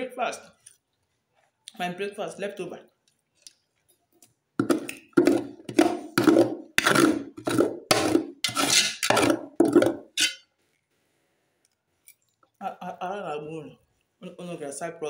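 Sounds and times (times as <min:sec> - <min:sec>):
spatula scraping aluminium pot: 0:04.6 - 0:10.4.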